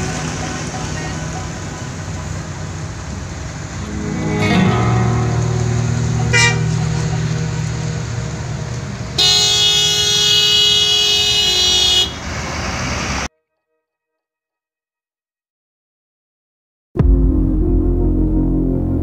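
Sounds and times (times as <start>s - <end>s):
bus horn toot: 0.0s - 2.8s, 3.7s - 13.4s
bus diesel engine running: 0.0s - 13.3s
bus air horn chord: 3.8s - 12.2s.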